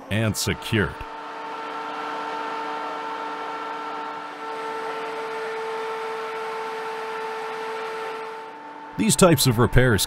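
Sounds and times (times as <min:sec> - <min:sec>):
machinery drone with whine: 0:00.0 - 0:10.0.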